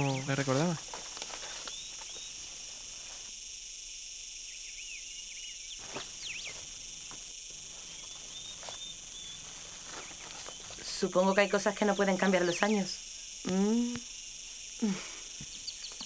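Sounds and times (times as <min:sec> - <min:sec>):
insects chirring: 0:00.0 - 0:16.0
bird chirps: 0:04.6 - 0:06.6, 0:07.9 - 0:12.1, 0:15.4 - 0:16.0.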